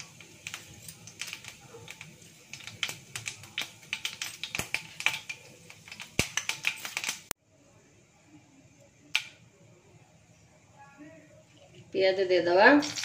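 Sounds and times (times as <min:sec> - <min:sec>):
seeds popping in hot oil: 0:00.0 - 0:07.4, 0:08.9 - 0:09.6, 0:11.8 - 0:13.0.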